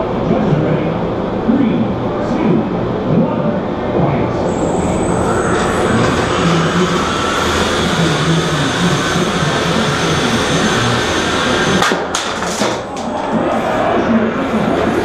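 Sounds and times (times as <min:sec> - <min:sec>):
loud hall noise: 0:00.0 - 0:15.0
robot motors whirring and whining: 0:04.5 - 0:11.8.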